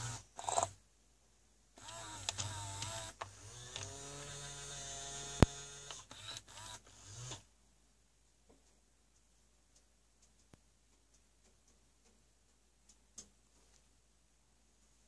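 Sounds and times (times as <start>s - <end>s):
toy motor whirring: 0.0s - 0.8s, 1.8s - 7.4s.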